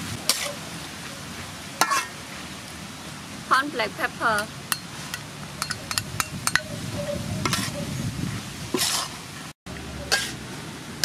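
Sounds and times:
light sizzle: 0.0 - 6.9
metal spatula scraping a wok: 0.2 - 0.6, 1.8 - 2.2, 4.8 - 9.2, 10.0 - 10.5.

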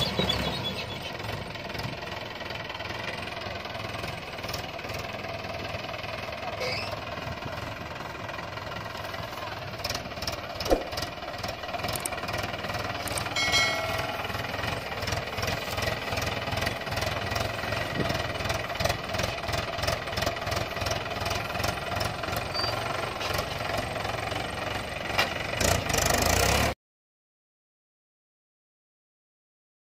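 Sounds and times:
tractor diesel engine chugging: 0.0 - 26.8
sharp knock: 10.7 - 10.9.

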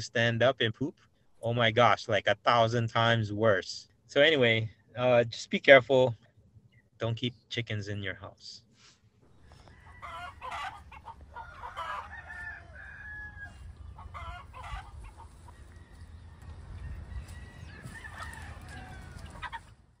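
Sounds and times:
chickens clucking: 9.3 - 20.0
rooster crowing: 9.4 - 19.7.

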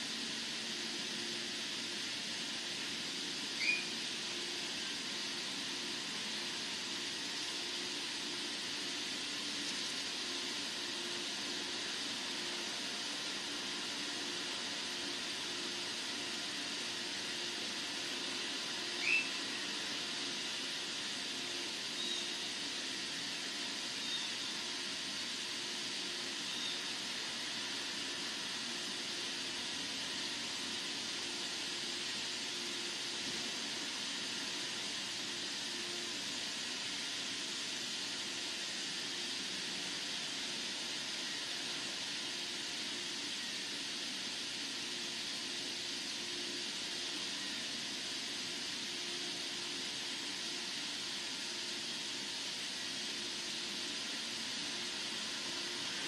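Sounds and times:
steady hiss: 0.0 - 56.0
short rising whistle: 3.6 - 4.0, 19.0 - 19.4.

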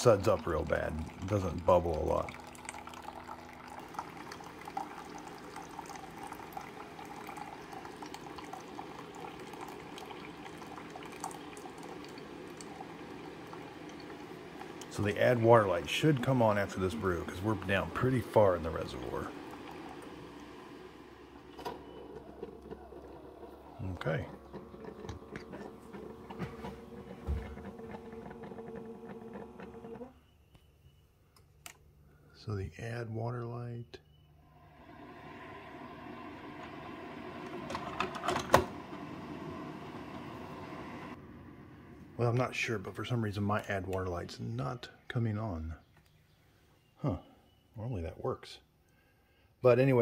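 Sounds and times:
liquid pouring into plastic cup: 0.0 - 21.5, 22.2 - 30.1
coffee maker ticks and spits: 0.0 - 30.1, 35.0 - 41.2.

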